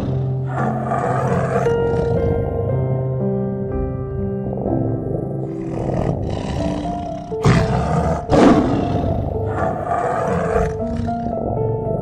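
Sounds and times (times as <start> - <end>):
tiger roaring: 0.0 - 3.0, 4.4 - 12.0
soft background music: 0.0 - 12.0.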